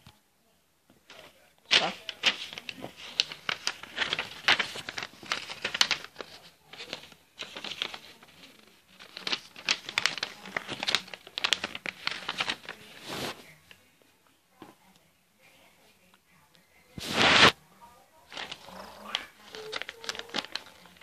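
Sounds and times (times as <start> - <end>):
paper rustling and crinkling: 1.0 - 13.8, 17.0 - 17.6, 18.2 - 21.0.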